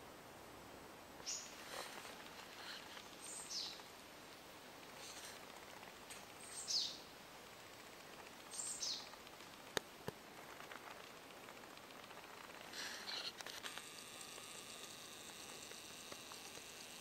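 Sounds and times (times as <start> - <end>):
songbird calling: 1.2 - 1.6, 2.9 - 3.8, 6.4 - 7.1, 8.5 - 9.1.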